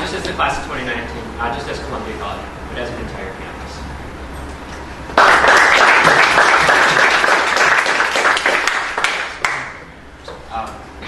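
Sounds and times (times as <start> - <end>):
small group applauding: 5.2 - 9.9.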